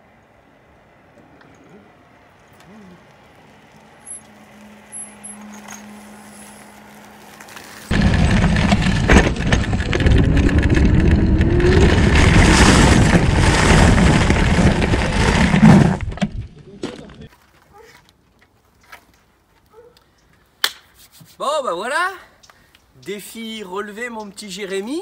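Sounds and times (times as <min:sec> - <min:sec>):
scooter wheels rumbling on gravel: 0:02.3 - 0:18.3.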